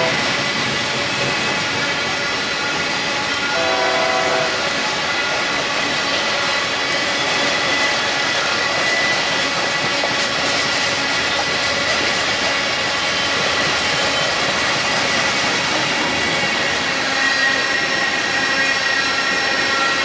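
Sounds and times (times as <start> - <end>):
train horn tone: 0.0 - 0.3, 3.4 - 4.7
steel wheels on rails: 0.0 - 20.0.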